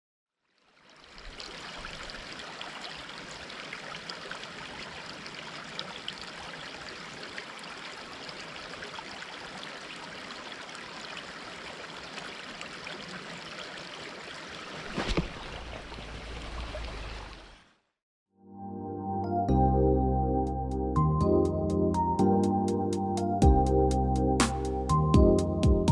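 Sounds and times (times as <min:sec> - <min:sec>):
river water over stones: 0:00.4 - 0:17.8.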